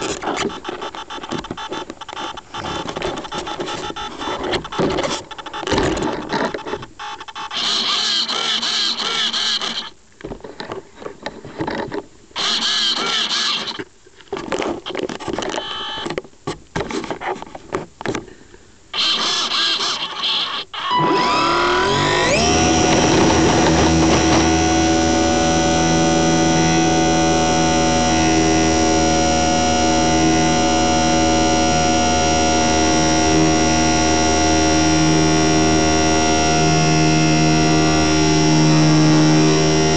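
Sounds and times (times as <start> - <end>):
model plane motor revving: 7.5 - 9.9, 12.4 - 13.8, 19.0 - 39.9
rattling and scraping: 22.2 - 26.3.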